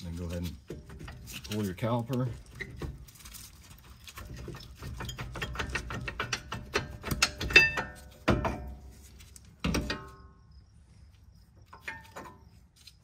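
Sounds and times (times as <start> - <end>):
metal clicks and rattles: 2.4 - 10.2
ringing metal clanks: 4.8 - 8.9.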